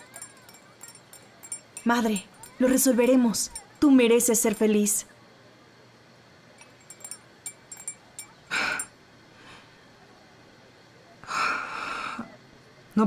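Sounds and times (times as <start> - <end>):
distant calls: 0.0 - 3.8
small clicks and clinks: 0.0 - 4.8, 6.6 - 8.9.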